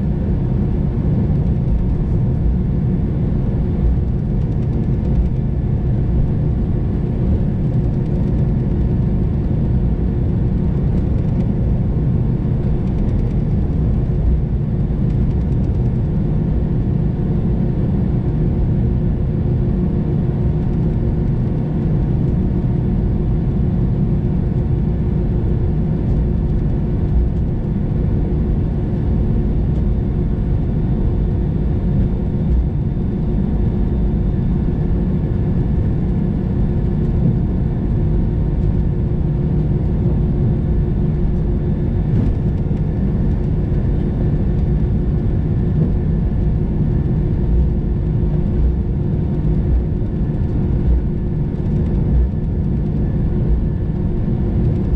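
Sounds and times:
aircraft cabin rumble: 0.0 - 54.9
steady hum tones: 0.0 - 54.9.

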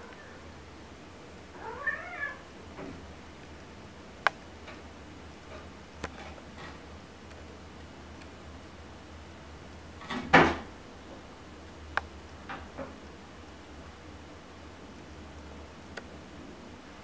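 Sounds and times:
cat meowing: 1.5 - 2.5
cat chirping: 1.6 - 2.5.

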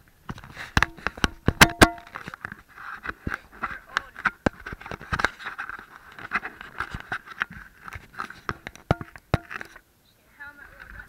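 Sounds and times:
fingers handling a small camera: 2.2 - 9.8.

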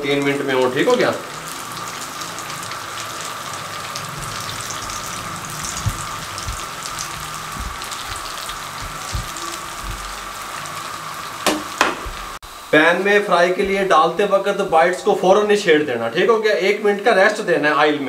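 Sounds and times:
oil popping: 0.0 - 12.4
potatoes sizzling in hot oil: 0.0 - 15.6.

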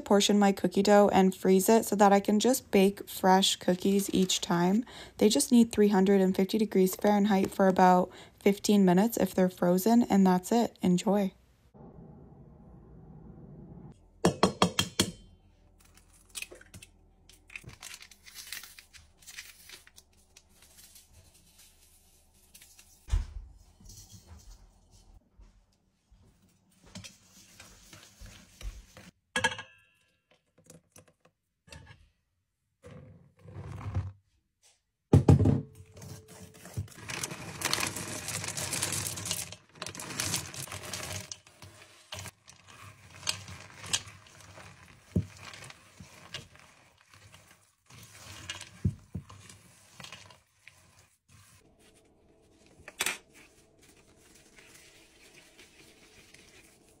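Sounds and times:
chocolate chips pouring rattle: 37.0 - 41.4.

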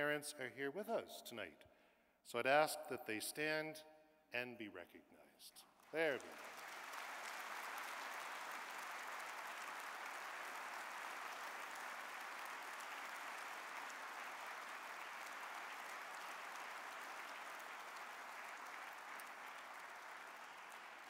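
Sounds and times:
audience applauding: 5.8 - 21.0.

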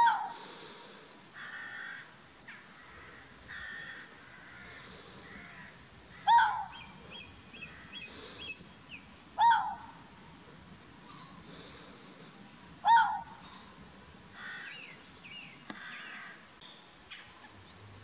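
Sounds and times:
fox barking: 0.0 - 0.5, 6.1 - 7.0, 9.4 - 10.0, 12.8 - 13.5.

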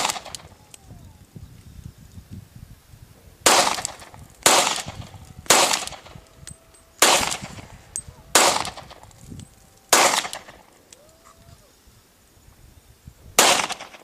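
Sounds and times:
pistol shots echoing: 0.0 - 0.5, 3.4 - 6.2, 7.0 - 7.7, 8.3 - 9.0, 9.9 - 10.7, 13.4 - 14.0.

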